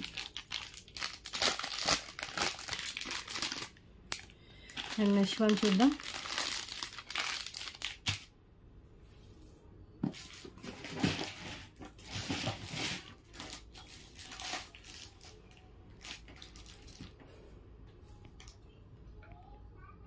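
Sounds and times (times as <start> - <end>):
plastic packet crinkling: 0.0 - 8.3, 10.2 - 17.2.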